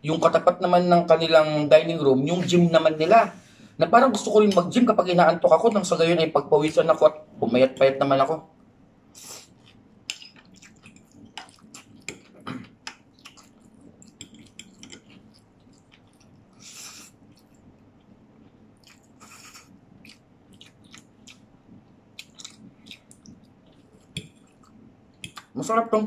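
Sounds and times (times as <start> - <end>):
wet chewing and lip-smacking: 9.2 - 25.6.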